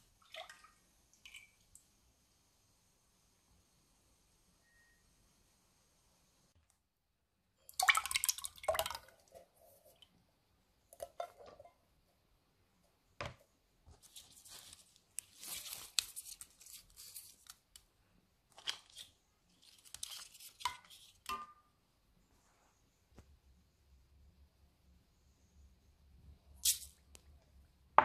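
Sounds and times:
leaves rustling and tearing: 0:14.3 - 0:17.6.

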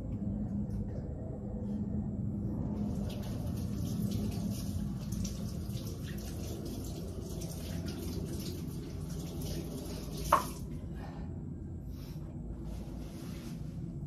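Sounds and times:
tap water splashing: 0:03.2 - 0:10.7.

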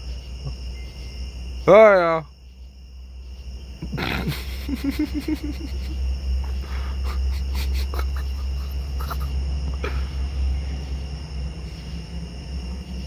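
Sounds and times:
man making pulsing growl: 0:03.8 - 0:04.8, 0:09.0 - 0:10.4.

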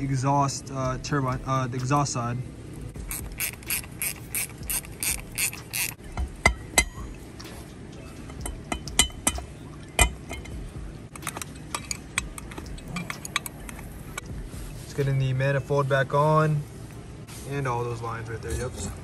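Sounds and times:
hand ratchet clicking: 0:03.0 - 0:06.9, 0:11.1 - 0:14.2
metal tools clinking: 0:10.0 - 0:14.2.

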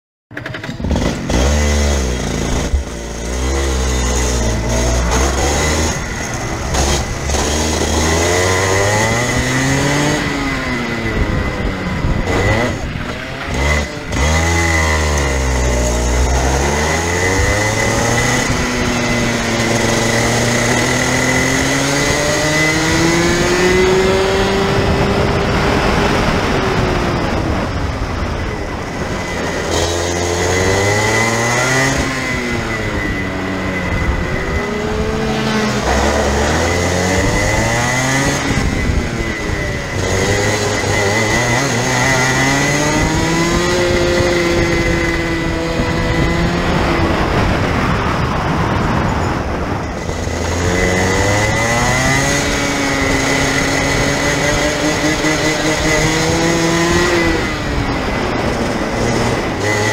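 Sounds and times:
kart engine revving: 0:00.3 - 0:59.9.

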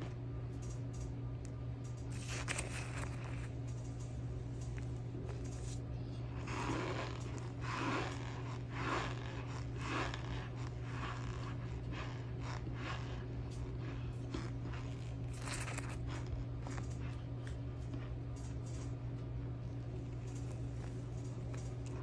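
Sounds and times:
steady low hum: 0:00.0 - 0:22.0
plastic spoon scraping cornstarch: 0:02.1 - 0:03.6, 0:04.8 - 0:17.2.

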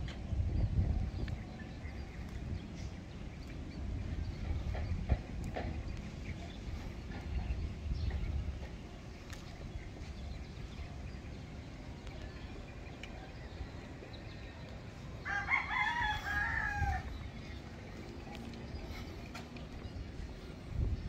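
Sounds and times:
steady low rumble: 0:00.0 - 0:21.0
rooster crowing: 0:15.2 - 0:17.1.

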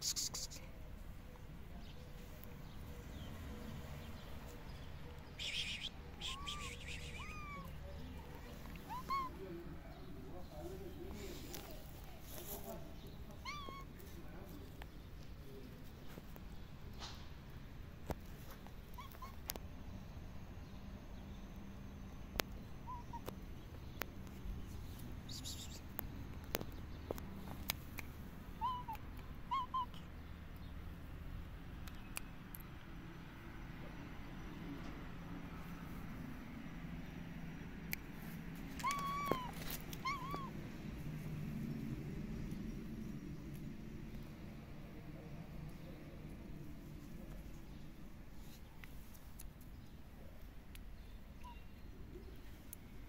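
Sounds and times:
high-pitched animal calls: 0:05.4 - 0:07.9, 0:08.8 - 0:09.4, 0:28.6 - 0:30.0, 0:38.8 - 0:40.5
rustling: 0:10.5 - 0:14.8, 0:38.2 - 0:40.6.

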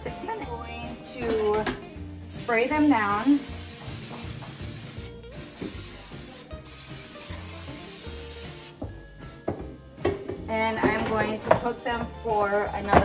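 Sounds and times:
cooking spray hissing: 0:02.2 - 0:09.0.

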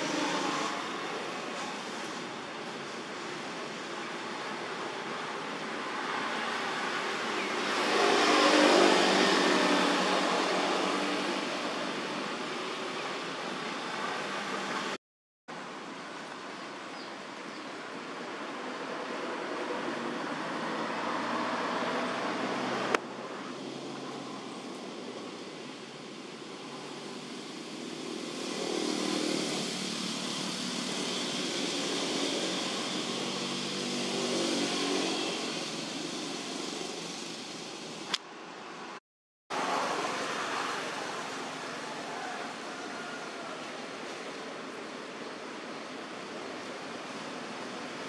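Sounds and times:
motor traffic rumble: 0:00.0 - 0:15.0, 0:17.8 - 0:48.0
motor vehicle passing: 0:28.2 - 0:37.2.

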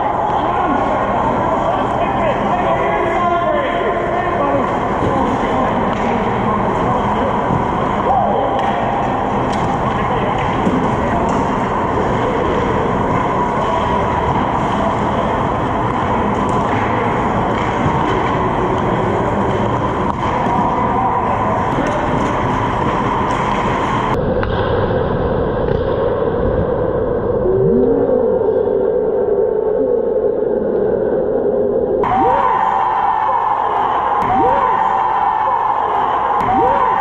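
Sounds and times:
indoor ice rink noise: 0:00.0 - 0:37.0.

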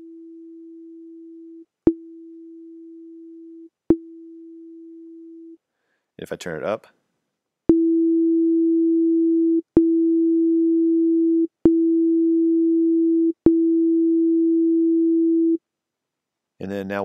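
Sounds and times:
synthesizer sine tone with click: 0:00.0 - 0:05.6, 0:07.7 - 0:14.1.

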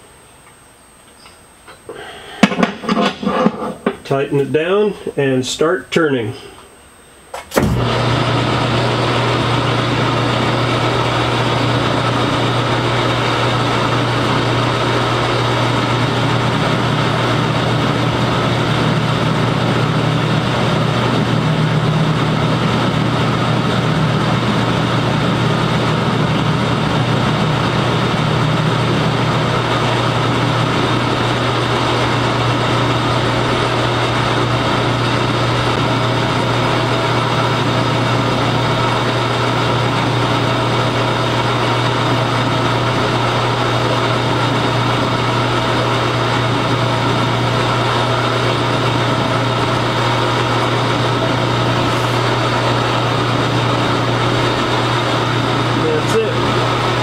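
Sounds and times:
metal lathe humming: 0:07.6 - 0:57.0.

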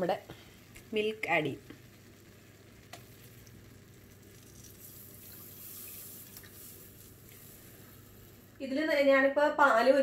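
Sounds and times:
milk pouring and splashing: 0:02.2 - 0:08.6.

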